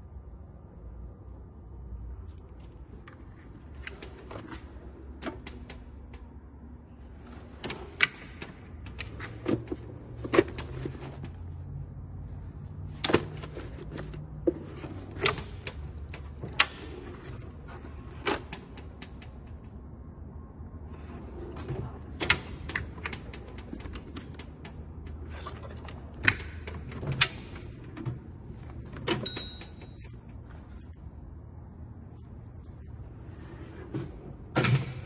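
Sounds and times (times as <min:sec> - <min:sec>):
metal drawers sliding: 0:03.0 - 0:06.2, 0:06.9 - 0:11.5, 0:12.9 - 0:19.5, 0:20.9 - 0:30.1, 0:33.1 - 0:35.0.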